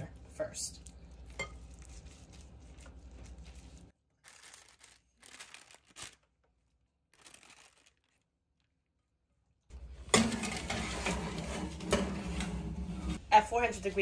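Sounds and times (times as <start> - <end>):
parchment paper crinkling: 0.8 - 9.0.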